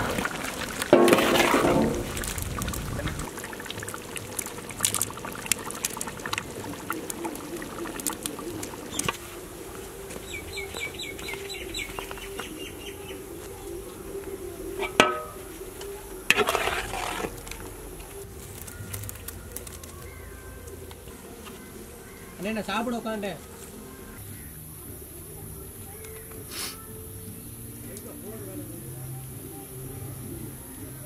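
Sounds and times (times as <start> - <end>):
metal ladle scraping pot: 0.0 - 2.7, 14.6 - 18.7
metal pot clanking: 0.0 - 9.8, 14.7 - 17.9
chickens clucking: 5.6 - 18.2.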